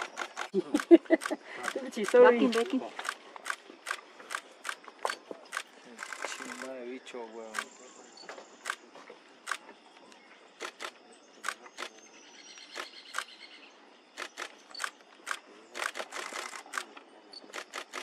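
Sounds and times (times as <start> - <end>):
camera shutters clicking: 0.0 - 6.7, 10.6 - 12.0, 12.6 - 13.4, 14.2 - 18.0.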